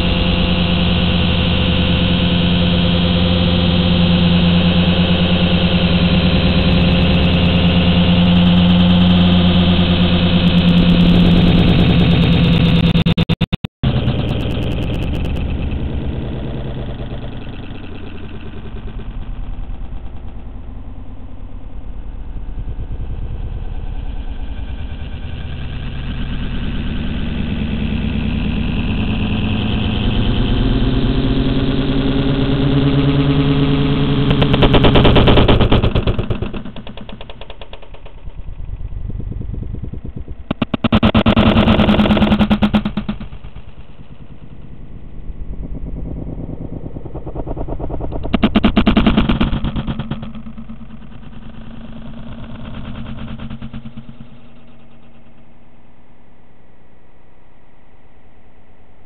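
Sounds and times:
drone motors humming: 0:00.0 - 0:55.6
rough rushing noise: 0:31.8 - 0:55.4.

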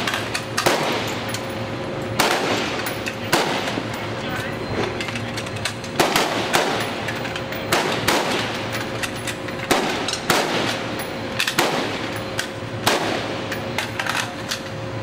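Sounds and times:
rifle shots: 0:00.0 - 0:01.2, 0:02.2 - 0:03.9, 0:06.0 - 0:07.0, 0:07.7 - 0:08.6, 0:09.7 - 0:12.1, 0:12.8 - 0:13.4.

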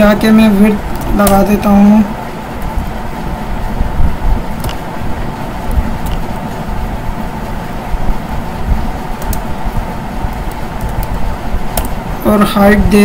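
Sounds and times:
low background rumble: 0:00.0 - 0:13.0.

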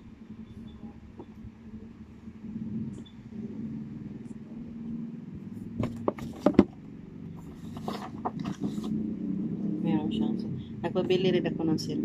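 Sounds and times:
steady low hum: 0:00.0 - 0:12.0
cardboard box knocks and clacks: 0:05.8 - 0:06.8.

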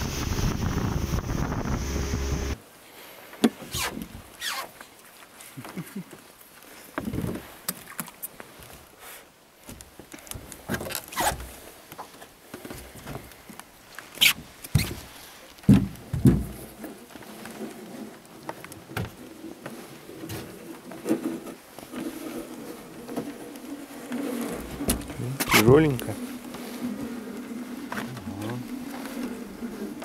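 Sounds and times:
fishing line rustling and scraping: 0:16.7 - 0:30.0.

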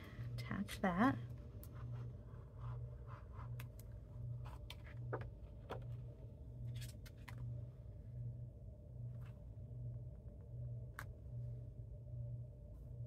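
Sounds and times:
low pulsing hum: 0:00.0 - 0:13.0.

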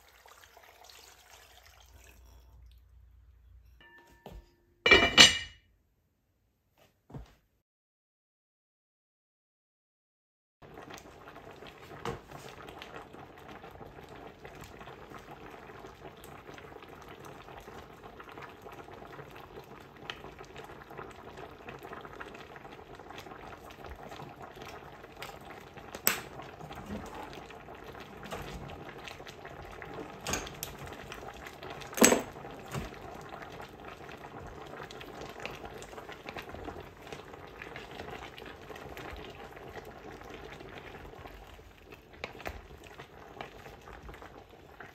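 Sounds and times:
stew bubbling in pot: 0:00.0 - 0:03.2, 0:10.6 - 0:44.9.

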